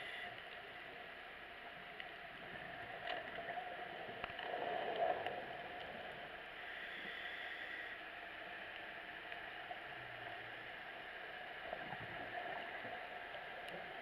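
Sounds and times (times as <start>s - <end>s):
muffled underwater hiss: 0.0s - 14.0s
faint clicks: 0.1s - 14.0s
scuba bubbles gurgling: 2.3s - 7.5s, 8.2s - 14.0s.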